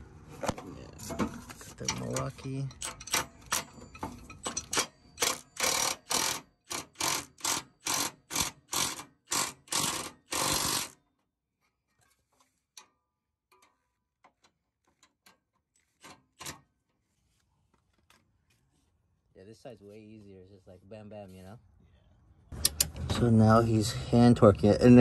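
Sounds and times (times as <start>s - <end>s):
cordless power tool bursts: 5.2s - 11.0s.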